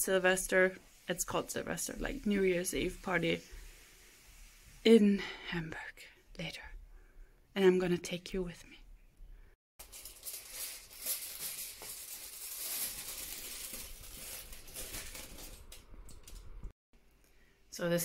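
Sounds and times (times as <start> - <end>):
aluminium foil crinkling: 9.8 - 16.5.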